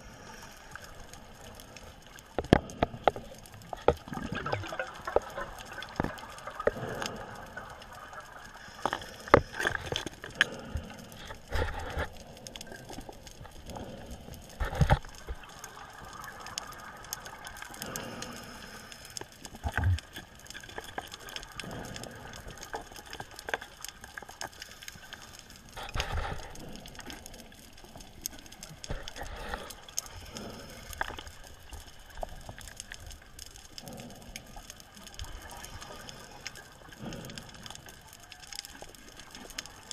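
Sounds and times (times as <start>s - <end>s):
underwater hiss: 0.0s - 13.0s, 15.4s - 19.8s, 24.6s - 32.7s
water rushing: 2.7s - 11.9s.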